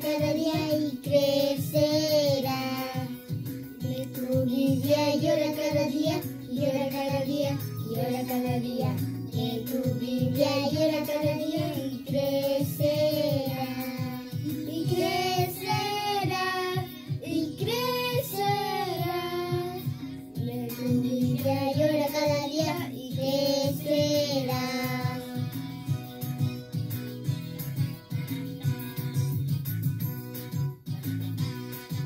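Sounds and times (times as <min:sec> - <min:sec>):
instrumental accompaniment with beat: 0:00.0 - 0:32.0
children singing: 0:03.9 - 0:19.8, 0:20.5 - 0:25.3.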